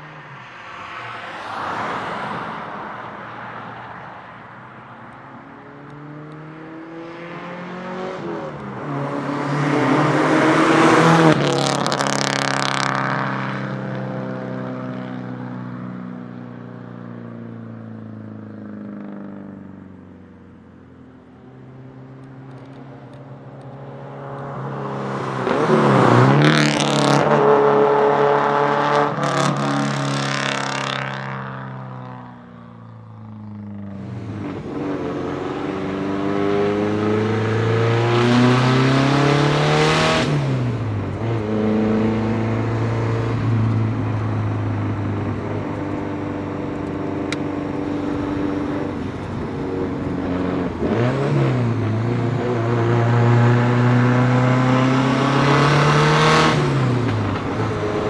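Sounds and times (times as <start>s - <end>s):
car engine accelerating hard: 5.5s - 15.5s, 21.6s - 32.2s, 33.3s - 58.0s.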